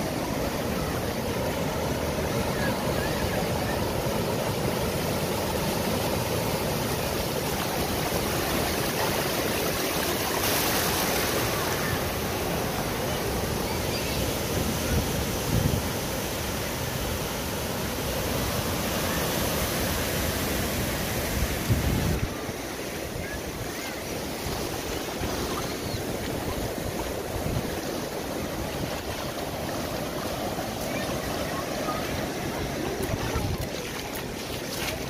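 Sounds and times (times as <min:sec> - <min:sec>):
ocean surf on beach: 0:00.0 - 0:35.0
wind on microphone: 0:21.3 - 0:22.5.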